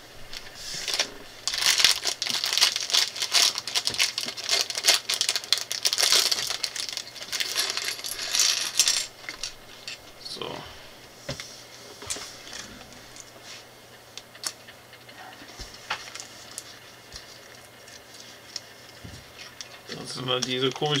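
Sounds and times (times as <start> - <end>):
plastic bag crinkling: 0.2 - 10.5
plastic pieces clattering on wood: 0.9 - 10.0.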